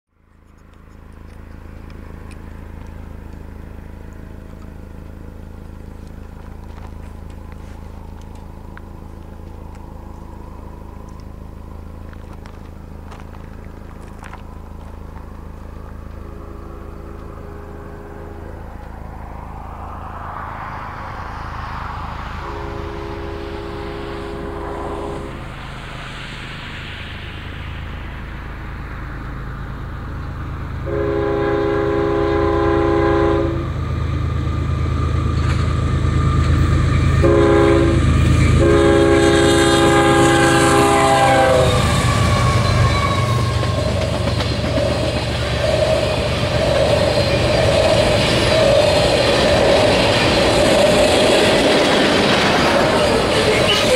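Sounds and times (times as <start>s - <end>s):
steady low rumble: 0.1s - 53.9s
rushing noise: 1.6s - 53.9s
distant train horn blasts: 16.1s - 18.8s, 22.2s - 25.6s, 30.8s - 33.8s, 36.2s - 45.2s.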